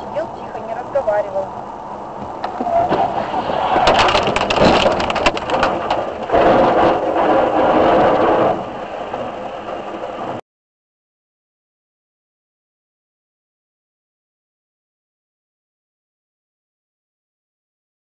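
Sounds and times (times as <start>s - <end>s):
rushing road noise: 0.0s - 10.4s
vehicle collision crunching: 2.2s - 10.4s.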